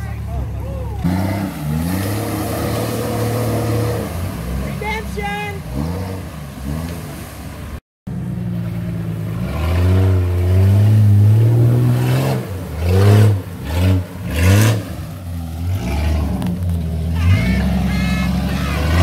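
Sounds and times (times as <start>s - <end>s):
car engine revving hard: 1.0s - 7.1s, 9.3s - 16.5s, 17.3s - 19.0s.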